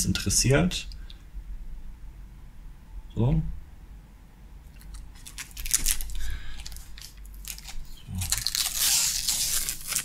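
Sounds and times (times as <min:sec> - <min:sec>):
plastic sleeve crinkling: 0:04.8 - 0:10.0.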